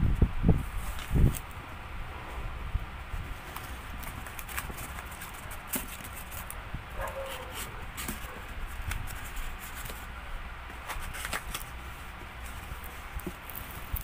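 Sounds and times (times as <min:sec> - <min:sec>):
cardboard box rustling and clicking: 0:03.5 - 0:06.6, 0:07.2 - 0:10.1.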